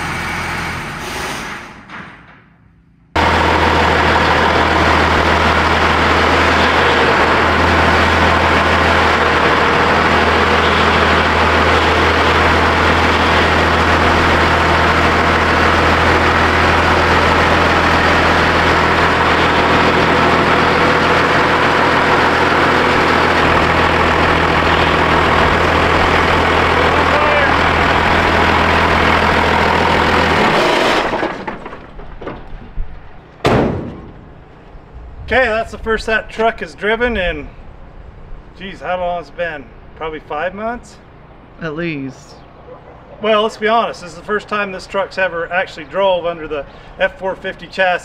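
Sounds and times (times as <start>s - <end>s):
diesel engine idling: 3.2s - 32.1s.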